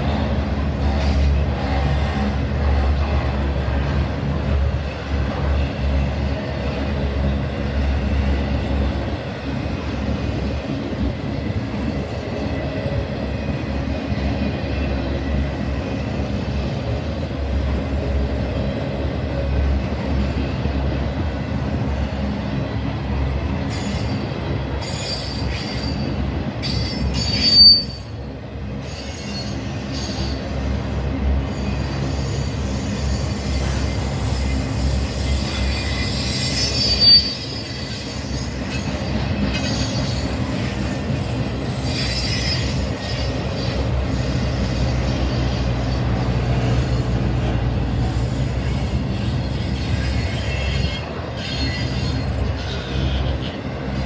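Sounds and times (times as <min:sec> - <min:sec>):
freight train wheels rumbling: 0:00.0 - 0:54.0
high wheel squeal: 0:23.7 - 0:28.2, 0:28.8 - 0:30.6, 0:31.5 - 0:46.0, 0:47.9 - 0:53.6.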